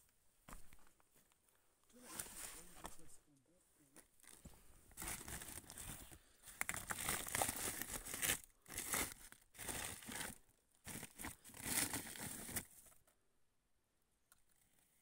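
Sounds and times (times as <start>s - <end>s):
plastic sacks rustling: 4.2s - 12.8s.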